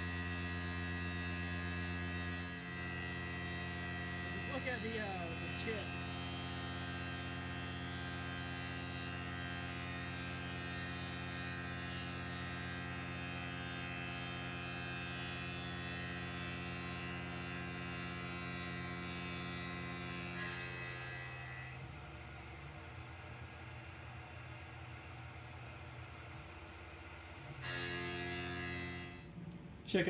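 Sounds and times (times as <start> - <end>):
milling machine cutting metal: 0.0 - 22.2.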